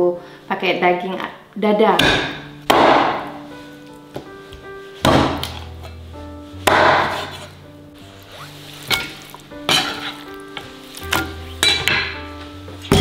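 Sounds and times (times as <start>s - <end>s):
background music: 0.0s - 13.0s
cleaver chopping on wooden board: 2.0s - 3.3s, 5.0s - 5.6s, 6.6s - 7.4s.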